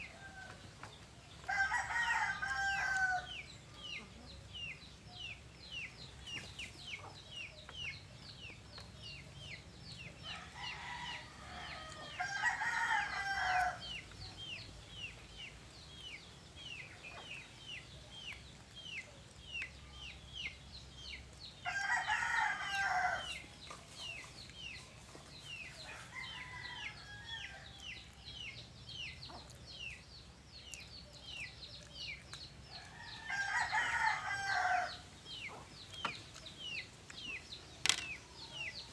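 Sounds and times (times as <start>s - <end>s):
rooster crowing: 1.4s - 3.3s, 10.3s - 13.8s, 21.7s - 23.4s, 25.9s - 27.8s, 32.8s - 35.0s.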